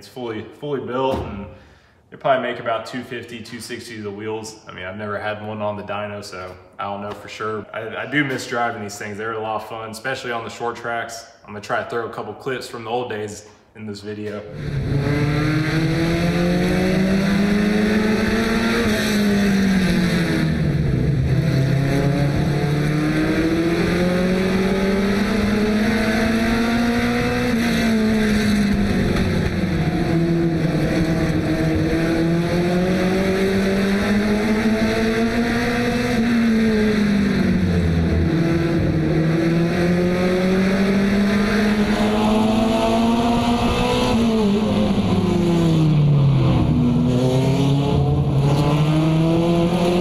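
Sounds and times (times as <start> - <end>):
race car engine revving: 14.4 - 50.0.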